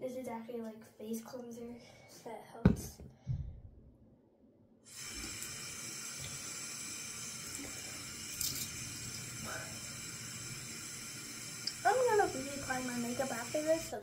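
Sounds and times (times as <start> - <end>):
tap water running into sink: 4.9 - 14.0.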